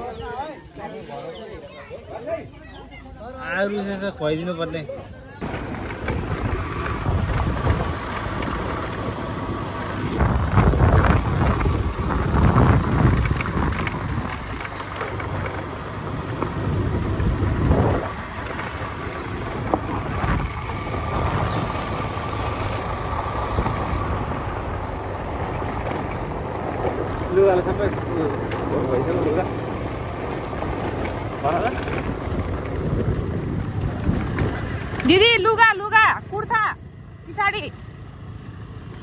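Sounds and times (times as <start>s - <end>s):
wind over microphone: 5.4s - 15.5s, 16.2s - 35.4s
motorcycle engine running: 5.4s - 39.0s.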